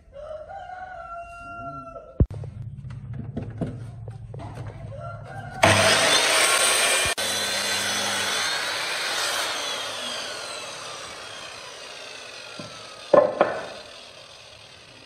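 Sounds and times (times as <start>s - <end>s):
miter saw cutting wood: 5.6s - 15.0s.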